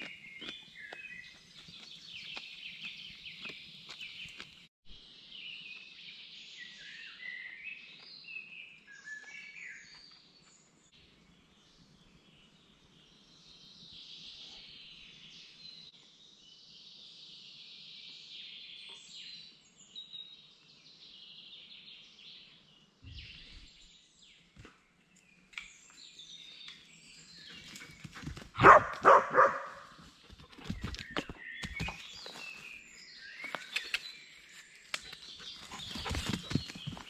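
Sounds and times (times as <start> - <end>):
birds chirping and singing: 12.1 - 24.5, 25.1 - 37.0
dog barking loudly: 28.6 - 30.0.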